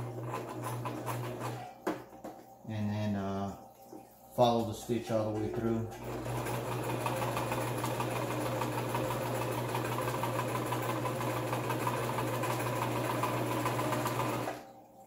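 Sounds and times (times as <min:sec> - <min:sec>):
sewing machine stitching fabric: 0:00.0 - 0:01.7, 0:05.9 - 0:14.6.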